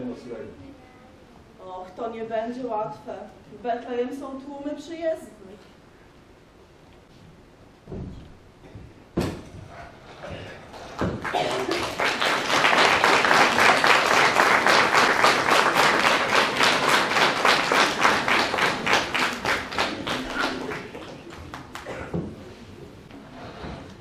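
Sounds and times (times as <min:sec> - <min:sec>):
audience applauding: 0:10.7 - 0:22.1.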